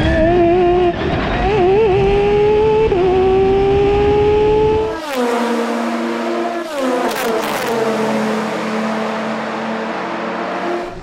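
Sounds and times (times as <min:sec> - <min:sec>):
race car engine accelerating: 0:00.0 - 0:11.0
race cars braking and downshifting: 0:00.0 - 0:11.0.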